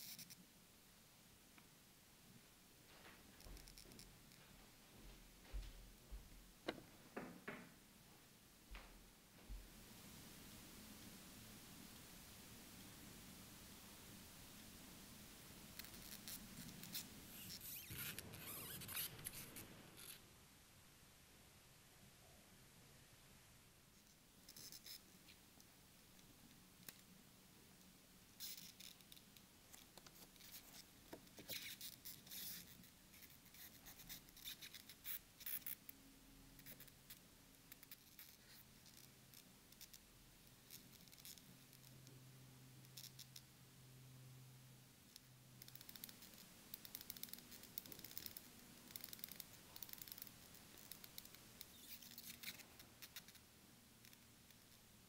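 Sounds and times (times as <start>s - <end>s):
faint rustling of handling: 2.3s - 11.2s, 27.8s - 36.0s
small scratchy clicks of watch: 24.0s - 25.4s, 36.6s - 42.1s, 42.8s - 43.5s, 45.1s - 54.8s.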